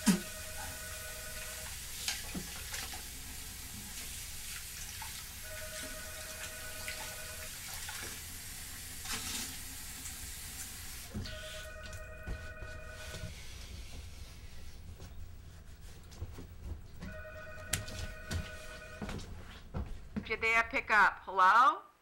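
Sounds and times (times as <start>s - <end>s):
telephone ringing: 0.0s - 1.8s, 5.4s - 7.6s, 11.2s - 13.4s, 17.0s - 19.2s.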